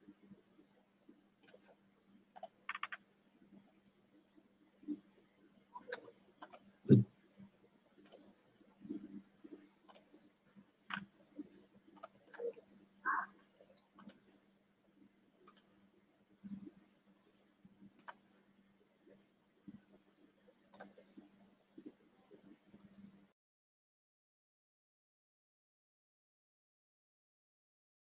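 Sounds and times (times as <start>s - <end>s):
mouse and keyboard clicks: 1.4s - 1.7s, 2.4s - 3.0s, 5.8s - 7.0s, 8.0s - 8.2s, 9.5s - 10.1s, 12.0s - 12.6s, 14.0s - 14.2s, 15.5s - 15.7s, 18.0s - 18.2s, 20.7s - 21.0s.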